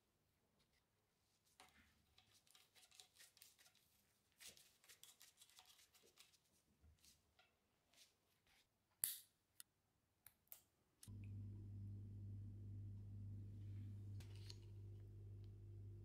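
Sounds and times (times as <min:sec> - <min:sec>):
steady low hum: 0:11.0 - 0:16.0.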